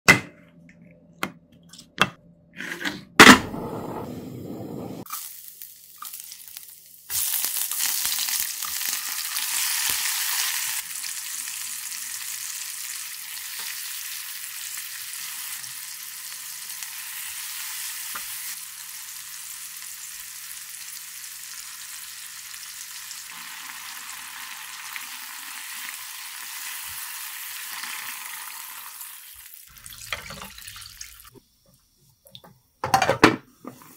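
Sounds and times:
food sizzling in hot oil: 0:05.0 - 0:31.4.

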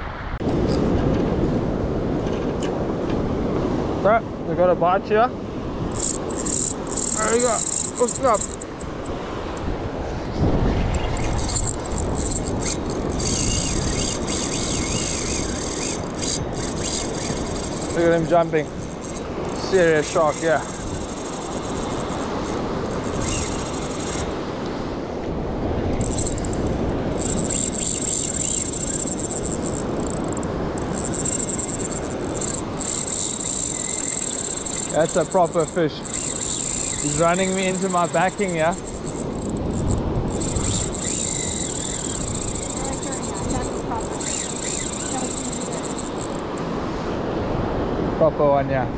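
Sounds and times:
surf on the beach: 0:00.0 - 0:41.1, 0:41.8 - 0:48.9
wind: 0:00.0 - 0:48.9
fishing reel drag buzzing: 0:05.8 - 0:09.7, 0:10.9 - 0:24.5, 0:25.9 - 0:46.7
high wavering whine: 0:25.9 - 0:46.5.

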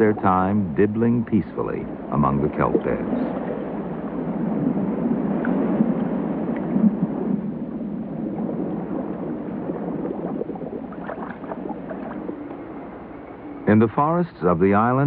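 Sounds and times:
water sloshing against rocks: 0:04.4 - 0:13.4.

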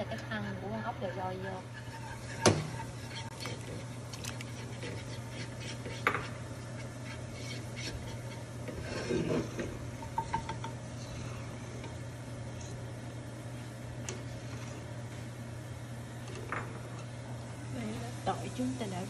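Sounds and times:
metal ladle scraping pot: 0:00.4 - 0:09.8.

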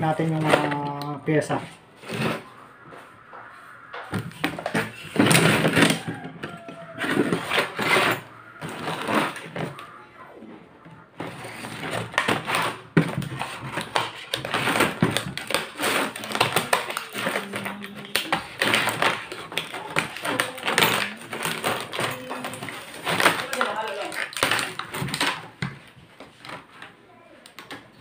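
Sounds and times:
plastic packaging crackling: 0:03.7 - 0:09.9, 0:11.2 - 0:26.8.

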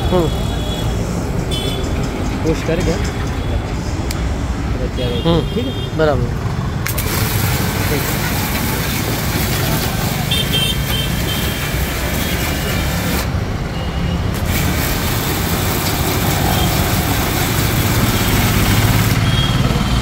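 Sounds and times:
pressure washer motor humming: 0:06.6 - 0:20.0
water spray hissing: 0:06.9 - 0:13.5, 0:14.2 - 0:20.0.

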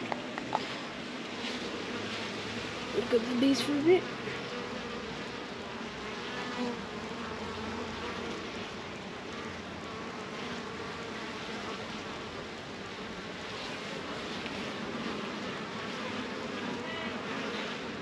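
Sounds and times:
honeybees buzzing: 0:00.0 - 0:18.0.

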